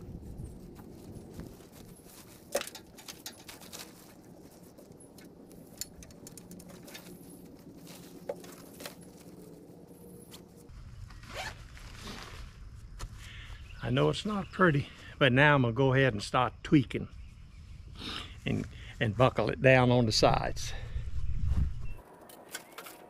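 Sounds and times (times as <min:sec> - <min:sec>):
steady low hum: 0:00.0 - 0:11.1
tent poles clicking and knocking: 0:00.7 - 0:10.7.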